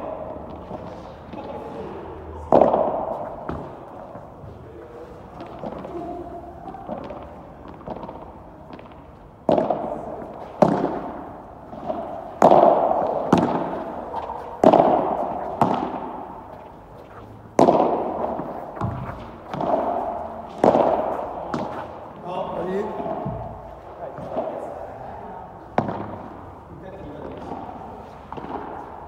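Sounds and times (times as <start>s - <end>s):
ball hitting rackets: 0.0s - 4.6s, 6.7s - 24.8s, 25.7s - 29.0s.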